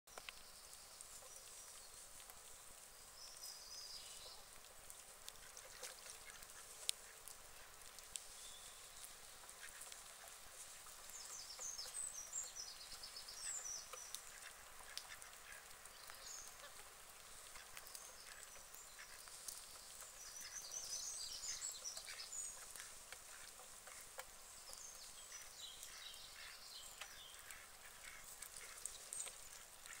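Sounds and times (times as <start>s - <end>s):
ducks quacking: 25.4s - 28.9s.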